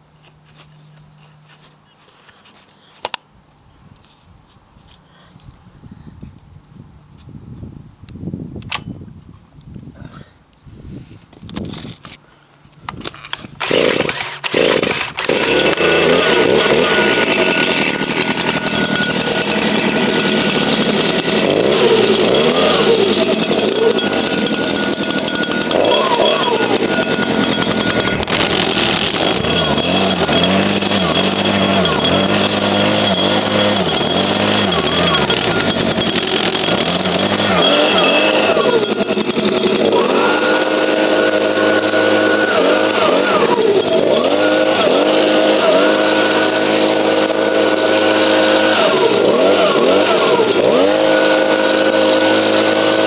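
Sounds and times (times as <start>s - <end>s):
leaf blower engine running: 13.2s - 53.0s.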